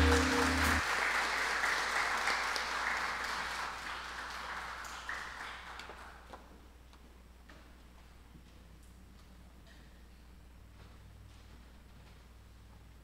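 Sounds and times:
audience applause: 0.0 - 6.3.

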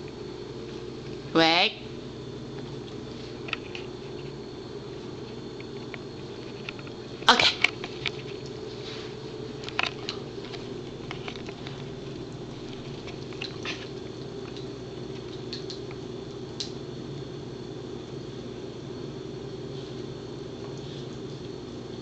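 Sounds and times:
dog gnawing a hard chew: 9.6 - 15.9.

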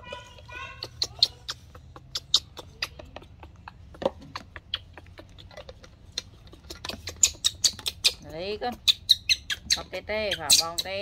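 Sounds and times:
baby monkey squeaking: 0.0 - 11.0.

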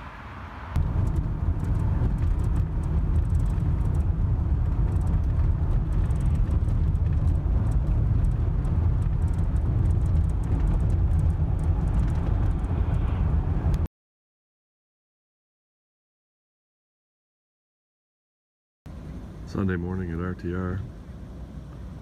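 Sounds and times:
car engine: 0.0 - 13.9, 18.9 - 22.0
tyre and road noise: 0.0 - 13.9.

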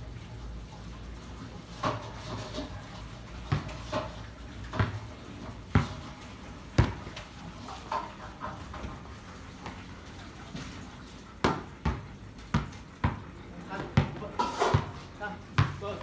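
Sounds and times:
basketball bouncing on concrete: 3.3 - 4.1, 4.7 - 7.3, 11.4 - 16.0.

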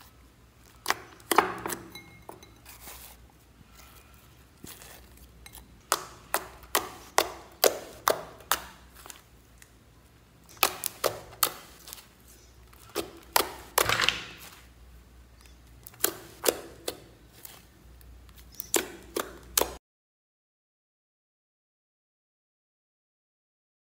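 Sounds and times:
slime crackling squelch: 2.6 - 19.8
slime clicking and popping: 10.4 - 11.8.

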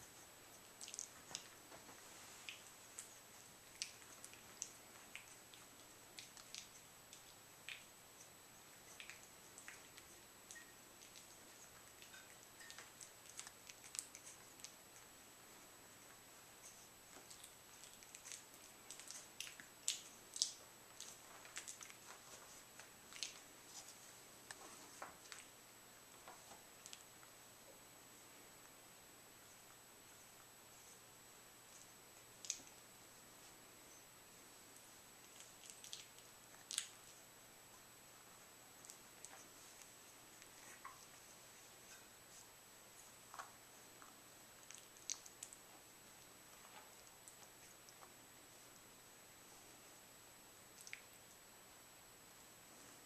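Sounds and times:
small wet clicks: 0.6 - 1.5, 2.4 - 7.9, 8.8 - 15.1, 16.6 - 23.9, 26.2 - 27.1, 32.4 - 32.8, 34.8 - 37.2, 43.3 - 48.2, 50.8 - 51.1
puppies scratching on carpet: 15.5 - 25.5, 38.4 - 45.6.

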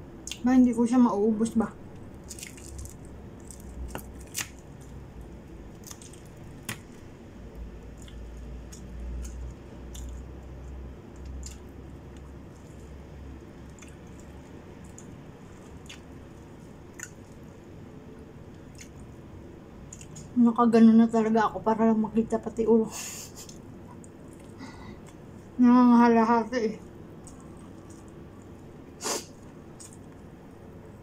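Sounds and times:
soft squishing of food: 0.0 - 20.4, 22.2 - 31.0
dried fish crackling when torn: 1.9 - 10.5.

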